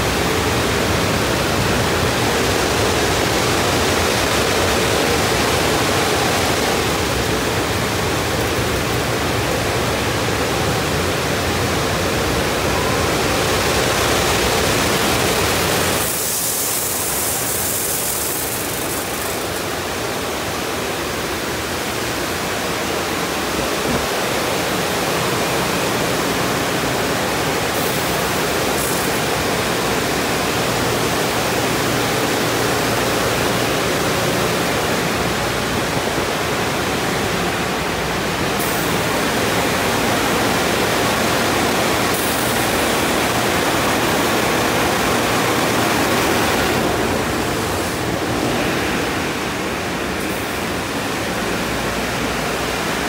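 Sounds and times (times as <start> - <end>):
water spraying: 13.5 - 20.6, 27.3 - 31.8, 38.4 - 52.8
car wash brushes working: 14.0 - 20.2.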